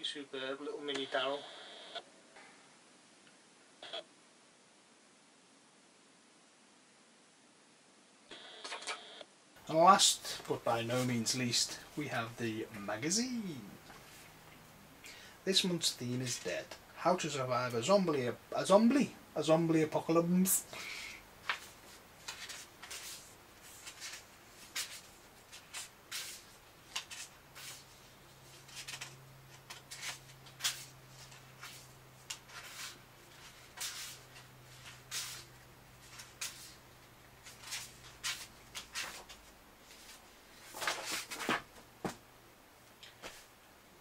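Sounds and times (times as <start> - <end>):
magazine pages rustling: 21.4 - 36.8, 37.4 - 42.2.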